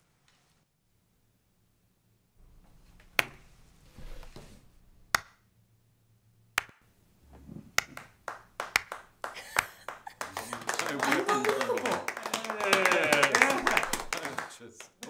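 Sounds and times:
slow hand claps: 6.6 - 6.8, 7.8 - 15.0.

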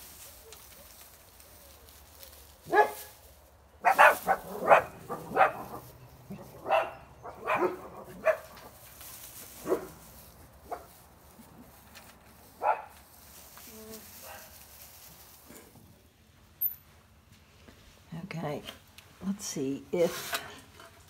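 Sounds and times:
small dog yapping: 3.8 - 5.8.

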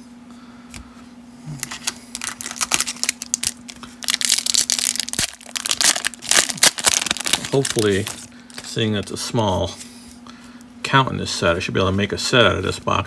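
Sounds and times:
foil wrapper tearing and crinkling: 1.5 - 8.8.

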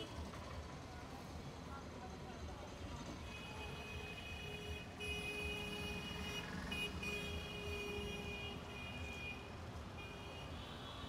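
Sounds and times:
traffic rumble on wet street: 0.0 - 11.0.

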